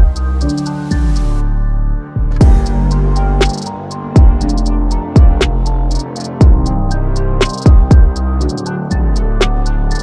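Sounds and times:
background music with deep bass: 0:00.0 - 0:10.0
kick drum: 0:02.4 - 0:02.8, 0:04.2 - 0:04.5, 0:05.2 - 0:05.6, 0:06.4 - 0:06.7, 0:07.6 - 0:08.3.

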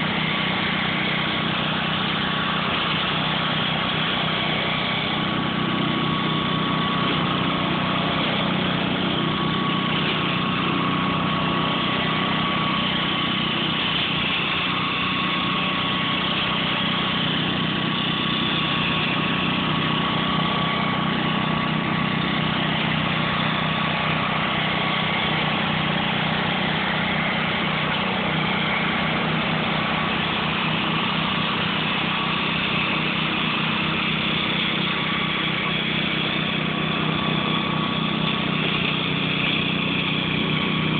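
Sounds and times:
mower engine running: 0:00.0 - 0:40.9.

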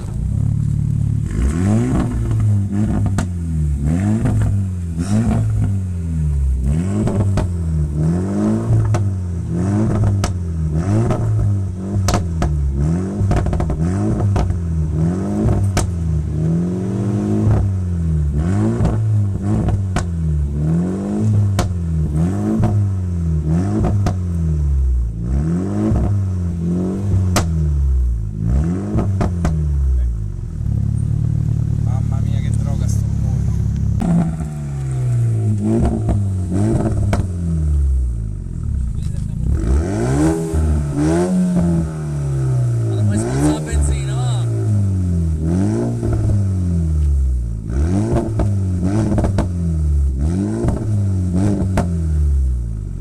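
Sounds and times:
exhaust crackles and pops: 0:00.0 - 0:05.8, 0:06.7 - 0:07.6, 0:08.7 - 0:16.6, 0:18.7 - 0:20.2, 0:21.3 - 0:22.9, 0:23.7 - 0:24.4, 0:27.0 - 0:28.2, 0:28.9 - 0:44.4, 0:45.4 - 0:52.1
car engine revving: 0:00.0 - 0:53.0.

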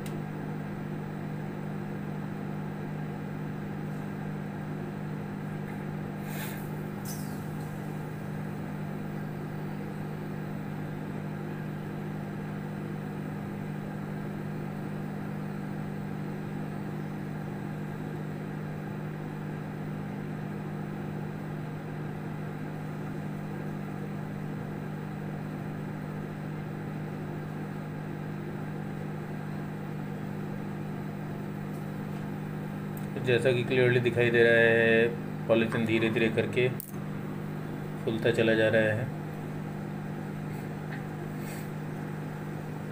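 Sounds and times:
microwave oven humming: 0:00.0 - 0:42.9.

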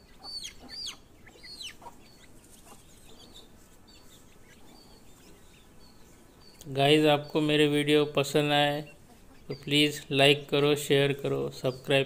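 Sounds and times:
chick distress calls: 0:00.0 - 0:10.1
chicks peeping: 0:00.0 - 0:12.0.

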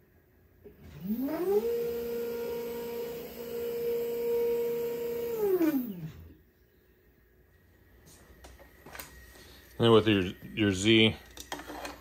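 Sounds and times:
stepper motors whining: 0:00.8 - 0:06.4.

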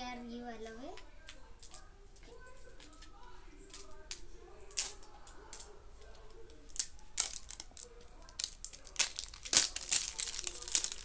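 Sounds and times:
plastic wrapping crinkling and tearing: 0:06.4 - 0:11.0.

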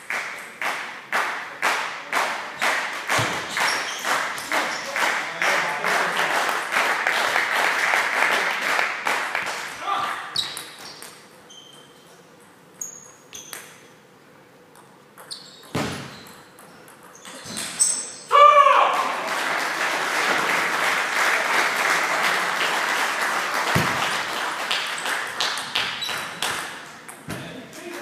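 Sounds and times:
shoe squeal: 0:03.4 - 0:04.9, 0:10.3 - 0:12.2, 0:12.8 - 0:13.8, 0:15.2 - 0:18.3, 0:25.9 - 0:26.4.

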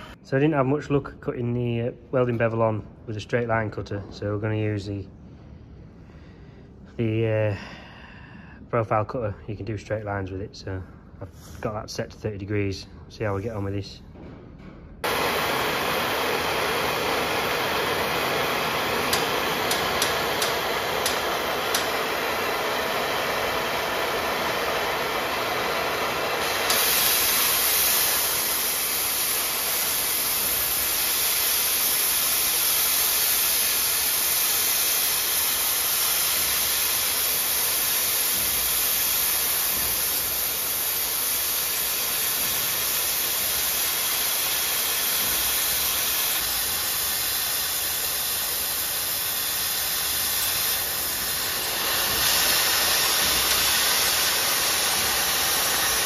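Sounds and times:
cutting torch hissing: 0:15.0 - 0:56.0.

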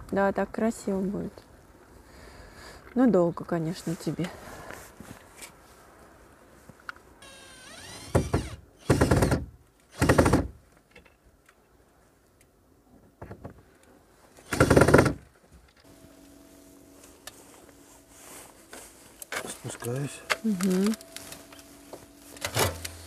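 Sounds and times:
power screwdriver driving screws: 0:07.2 - 0:10.4.

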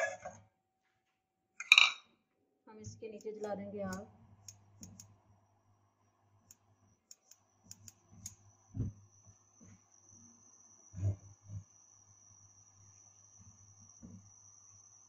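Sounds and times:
stove igniter clicking: 0:06.5 - 0:08.4.

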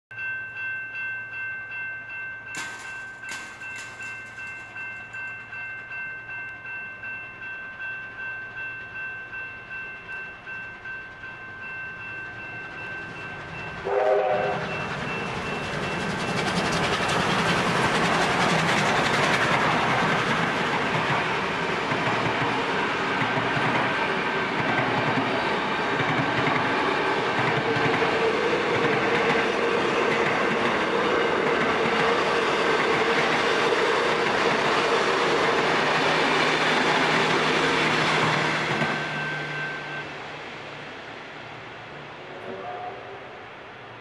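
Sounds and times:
level crossing bell ringing: 0:00.1 - 0:16.1
steam train passing: 0:00.2 - 0:44.0
steam locomotive whistle: 0:13.8 - 0:15.3, 0:42.3 - 0:43.7.

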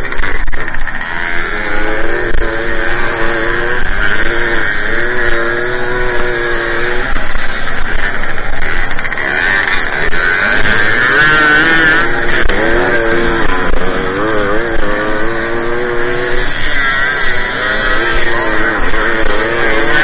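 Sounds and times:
two-stroke moped engine: 0:00.0 - 0:20.0.

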